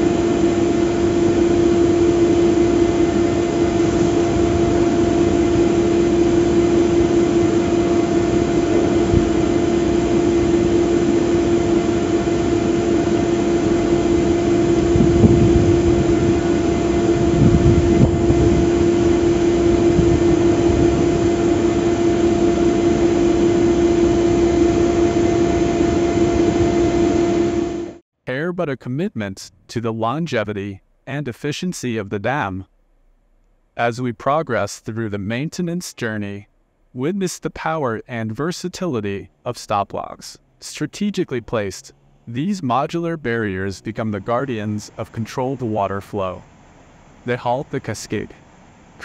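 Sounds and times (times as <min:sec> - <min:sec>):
crane hoist machinery humming: 0:00.0 - 0:28.0, 0:38.2 - 0:49.0
low rumbles: 0:00.0 - 0:28.0.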